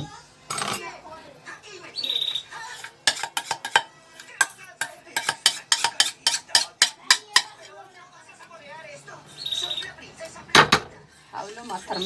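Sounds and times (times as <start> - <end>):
utensil scraping a metal saucepan: 2.4 - 7.8, 11.1 - 12.0.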